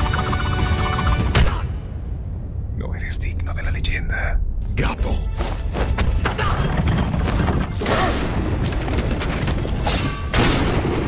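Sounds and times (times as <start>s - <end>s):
knocks clatters and crashes: 5.9s - 11.0s.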